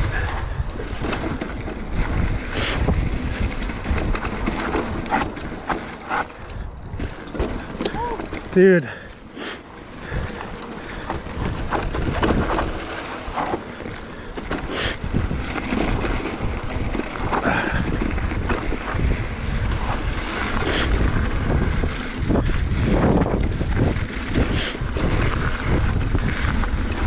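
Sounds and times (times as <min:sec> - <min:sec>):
bike knocks and rattles: 0:00.0 - 0:27.0
wind buffeting microphone: 0:00.0 - 0:27.0
tyre rumble on dirt: 0:09.8 - 0:27.0.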